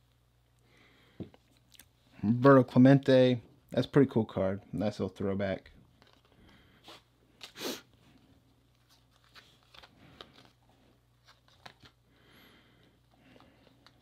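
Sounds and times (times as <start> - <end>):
cards clicking and sliding: 8.8 - 12.0.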